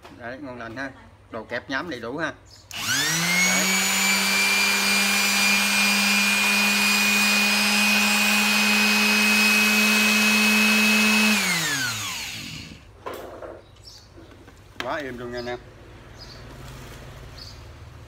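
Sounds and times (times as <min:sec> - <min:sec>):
electric sander running: 0:02.7 - 0:12.9
sander winding down: 0:02.7 - 0:12.9.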